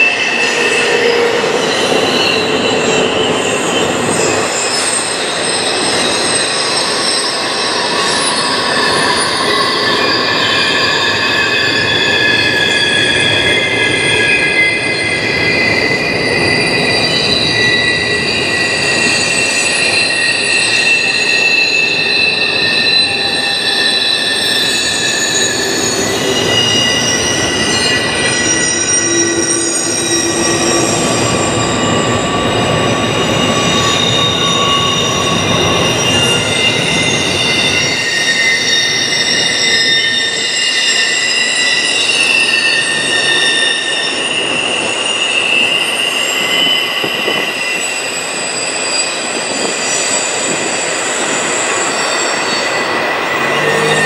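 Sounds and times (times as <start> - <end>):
freight train rumble: 0.0 - 54.0
train wheels squealing: 0.0 - 54.0.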